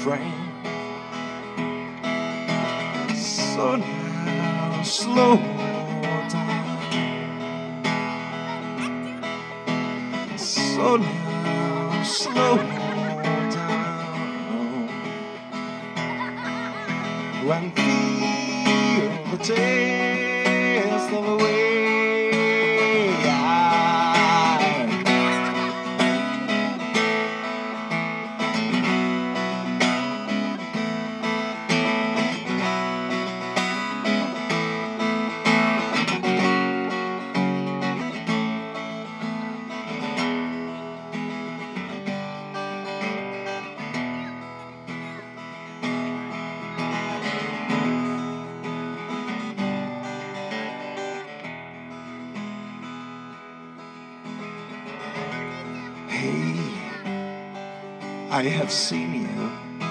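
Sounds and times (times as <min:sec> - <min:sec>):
man singing wordless melody: 0:00.0 - 0:01.0, 0:02.8 - 0:07.8, 0:10.1 - 0:15.8, 0:17.1 - 0:27.0, 0:56.0 - 0:59.9
acoustic guitar strumming: 0:00.0 - 0:59.9.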